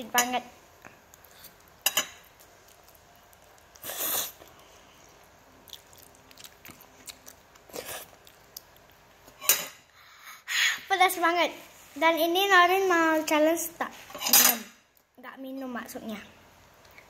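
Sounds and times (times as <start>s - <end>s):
child slurping noodles: 3.8s - 4.4s.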